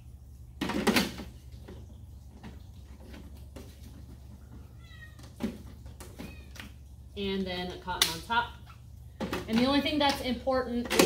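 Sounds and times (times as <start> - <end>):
plastic parts clicking and knocking: 0.6 - 1.8, 9.2 - 11.0.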